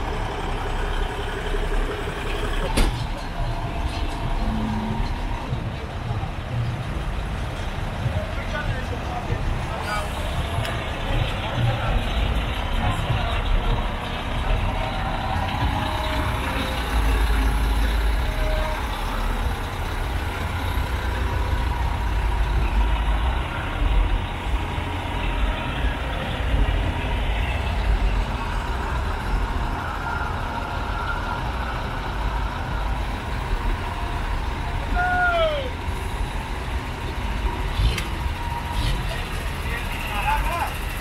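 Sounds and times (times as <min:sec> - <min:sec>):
diesel trucks rumbling: 0:00.0 - 0:41.0.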